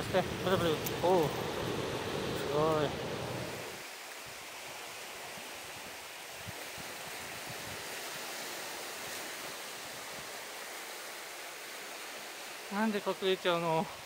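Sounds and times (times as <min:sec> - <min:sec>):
surf washing on a beach: 0:00.0 - 0:14.0.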